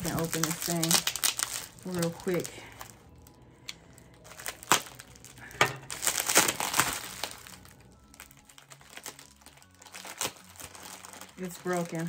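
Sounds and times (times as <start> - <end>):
packing wrap crinkling: 0.0 - 12.0.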